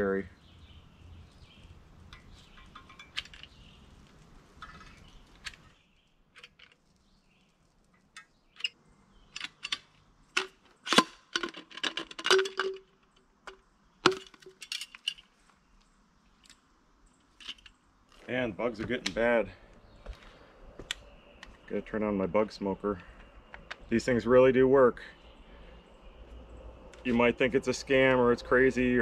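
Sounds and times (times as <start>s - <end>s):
caulking gun clicks and clanks: 8.1s - 12.9s.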